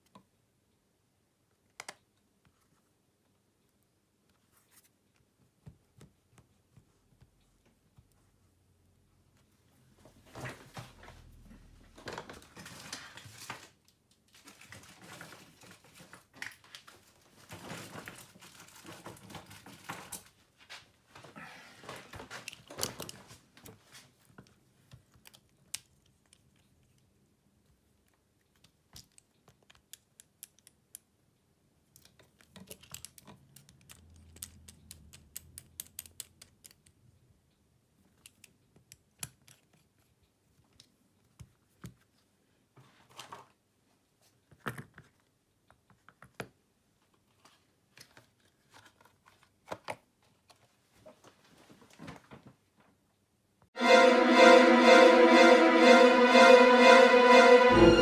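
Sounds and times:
small tools clicking and tapping: 28.6 - 31.1, 31.9 - 37.0.

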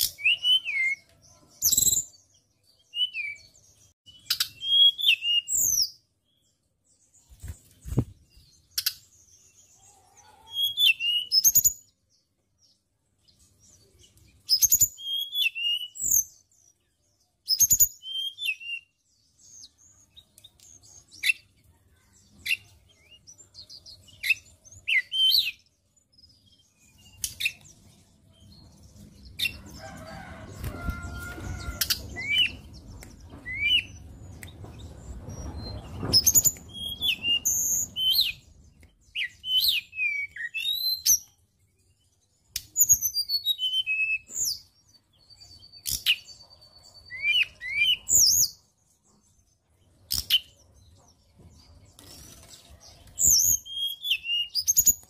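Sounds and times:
bird whistling song: 0.0 - 2.2, 2.8 - 6.0, 10.5 - 11.9, 14.4 - 16.5, 17.4 - 19.0, 24.0 - 25.7, 30.9 - 41.4, 42.5 - 44.7, 45.5 - 48.6, 53.1 - 55.0
sharp clicks in cage: 27.1 - 27.7, 50.1 - 50.5
rustling in cage: 29.8 - 32.4.

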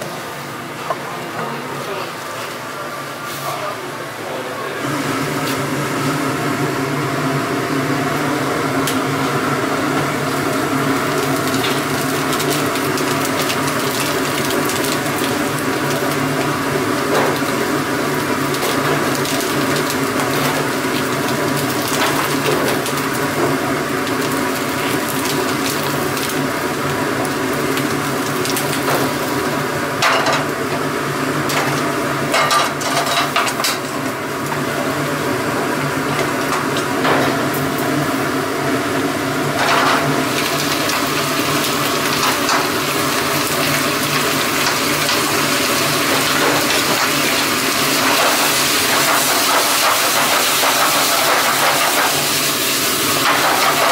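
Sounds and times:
kitchen hum: 0.0 - 53.9
gas burner flame rushing: 1.9 - 53.9.

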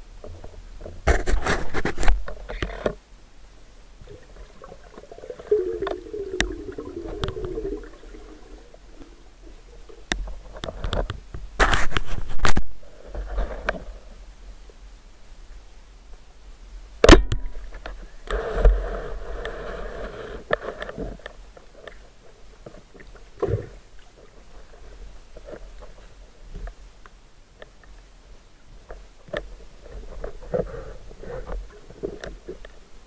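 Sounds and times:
underwater bubbling: 4.0 - 10.8.

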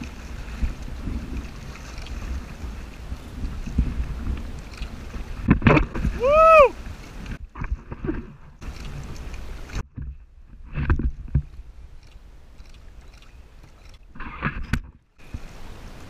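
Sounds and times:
dull knocks and splashes: 0.0 - 6.3, 7.0 - 11.7
water sloshing against kayak hull: 0.0 - 16.0.

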